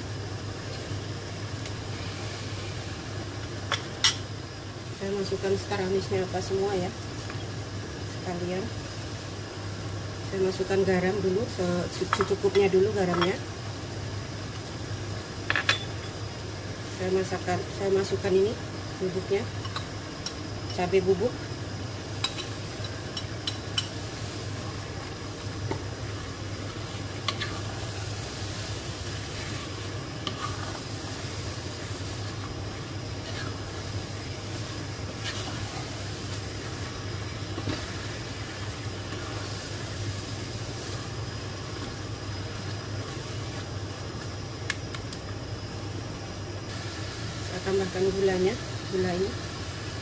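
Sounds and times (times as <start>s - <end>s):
faint sizzle: 0.0s - 50.0s
wooden spoon stirring in pot: 22.3s - 44.3s.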